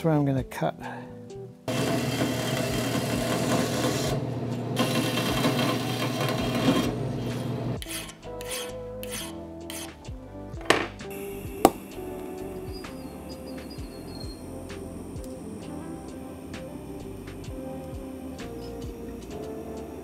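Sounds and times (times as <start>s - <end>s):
bandsaw cutting metal rod: 1.7s - 4.2s, 4.8s - 10.0s
hand file scraping metal: 5.1s - 10.0s
sharp snaps: 10.8s - 14.1s.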